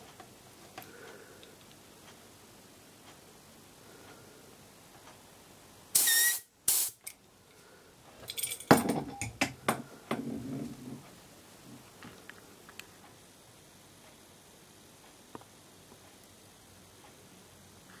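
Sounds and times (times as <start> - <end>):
compressed air blasts: 6.0 - 7.0.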